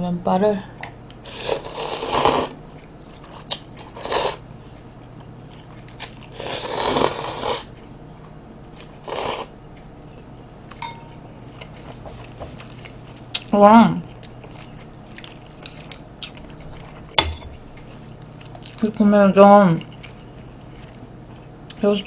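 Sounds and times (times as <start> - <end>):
faint low hum: 0.0 - 22.0
person slurping noodles: 1.3 - 2.6, 6.4 - 7.7.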